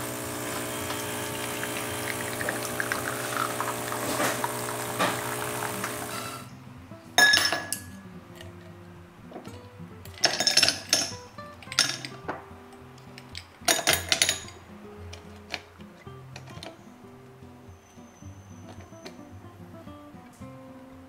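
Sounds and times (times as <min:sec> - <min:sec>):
ice cubes clinking in glass: 0:07.2 - 0:08.0, 0:10.2 - 0:12.2.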